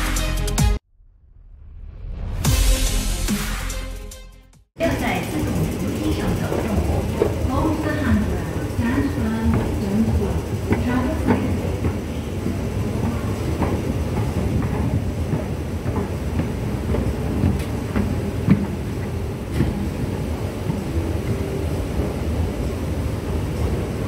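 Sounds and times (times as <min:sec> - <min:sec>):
escalator rumbling: 0:04.8 - 0:24.0
escalator steps clicking: 0:04.8 - 0:24.0.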